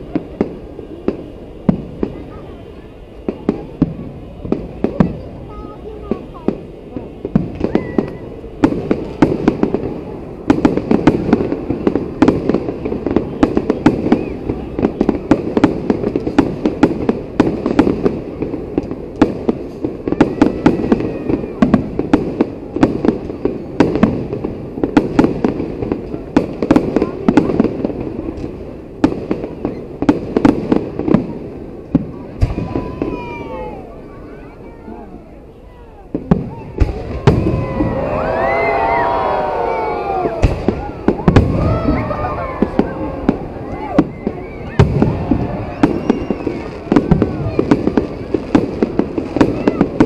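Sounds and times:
rumble of firework reports: 0:00.0 - 0:50.0
firework shells bursting: 0:40.4 - 0:50.0.

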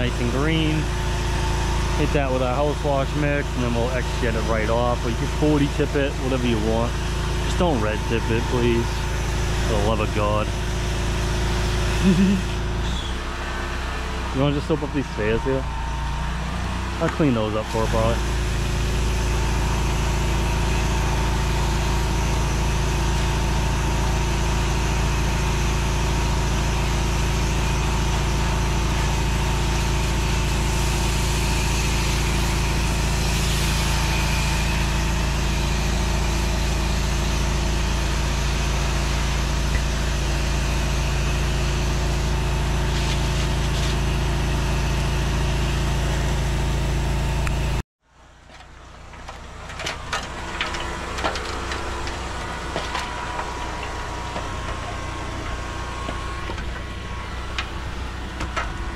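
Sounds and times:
pressure washer engine running: 0:00.0 - 0:58.9
water jet spraying on concrete: 0:40.0 - 0:45.2.

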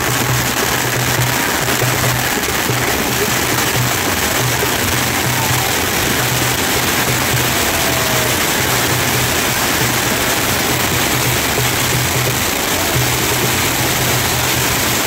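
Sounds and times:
firework fountains hissing: 0:00.0 - 0:15.0.

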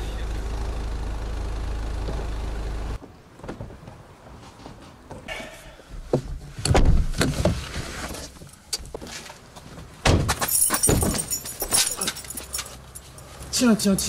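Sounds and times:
car door thuds: 0:06.7 - 0:07.4
keys jangling: 0:10.4 - 0:13.3.

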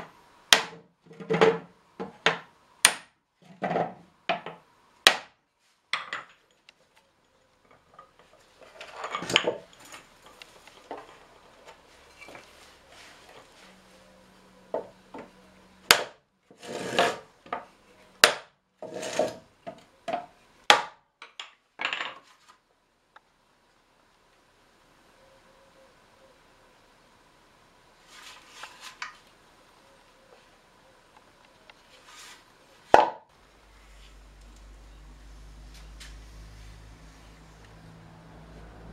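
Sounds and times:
scraping: 0:16.5 - 0:17.3, 0:18.8 - 0:19.5.

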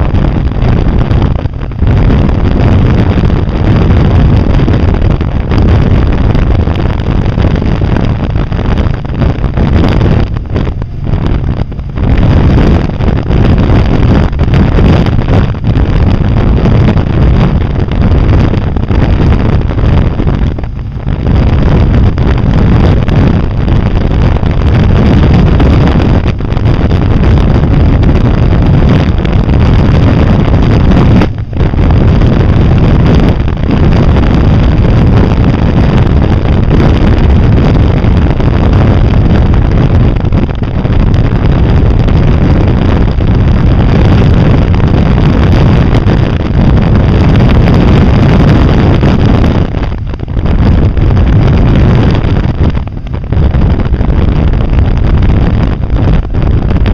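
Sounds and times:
road noise: 0:00.0 - 0:56.9
vehicle engine: 0:00.0 - 0:56.9
wind buffeting microphone: 0:00.0 - 0:56.9.

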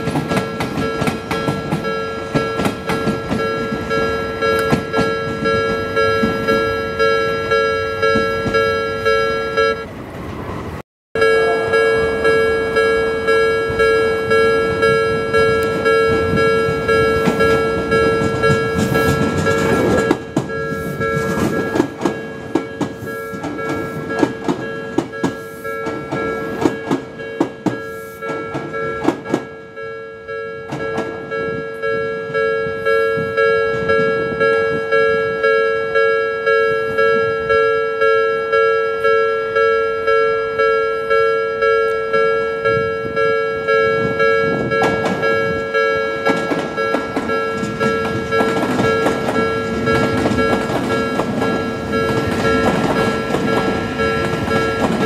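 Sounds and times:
train wheels clacking over rail joints: 0:00.0 - 0:06.7, 0:14.9 - 0:29.6, 0:30.6 - 0:31.5, 0:44.0 - 0:55.0
level crossing alarm bell: 0:00.0 - 0:09.9, 0:11.2 - 0:55.0.

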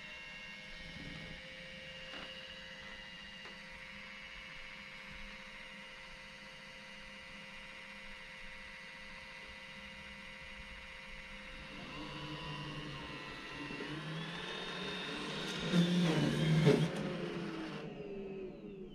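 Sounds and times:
robot vacuum motor hum: 0:09.8 - 0:18.9.

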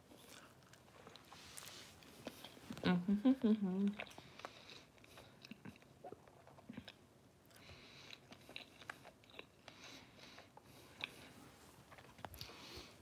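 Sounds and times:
faint chewing mouth clicks: 0:03.9 - 0:11.3.

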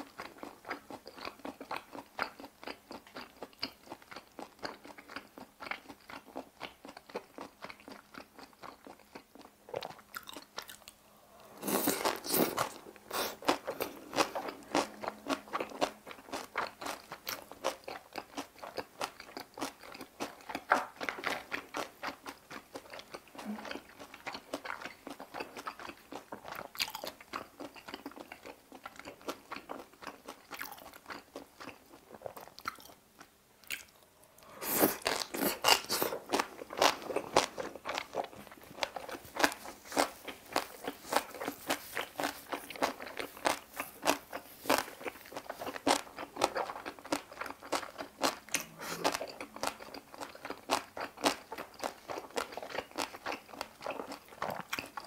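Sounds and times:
soft mouth sounds: 0:09.8 - 0:18.0, 0:23.2 - 0:24.1, 0:33.6 - 0:55.0
loud rapid crunching chewing: 0:11.6 - 0:32.9, 0:34.6 - 0:55.0.

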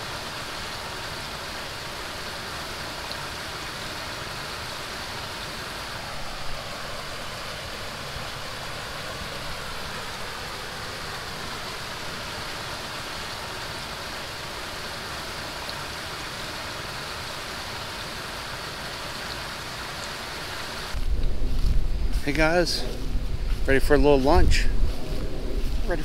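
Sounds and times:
rushing wind: 0:20.2 - 0:26.0.

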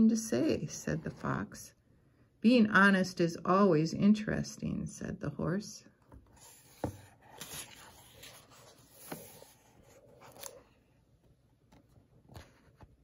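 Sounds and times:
book pages turning: 0:06.1 - 0:13.0.

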